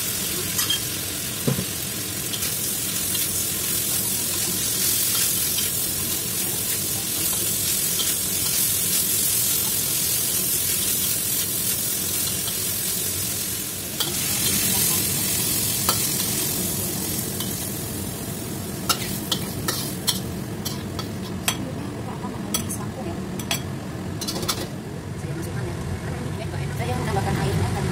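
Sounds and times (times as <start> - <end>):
stir-fry sizzling in a wok: 0.0 - 24.9
spatula stirring and tossing food: 2.2 - 13.3, 18.8 - 21.6
metal spatula scraping wok: 18.9 - 21.4.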